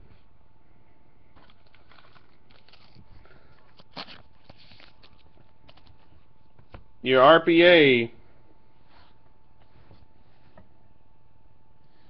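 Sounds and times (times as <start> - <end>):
cards tapping and rustling: 1.4 - 6.9.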